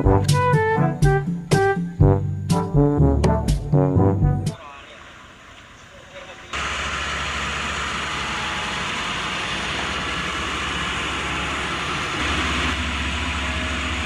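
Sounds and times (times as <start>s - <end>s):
diesel engine humming: 4.1s - 14.0s.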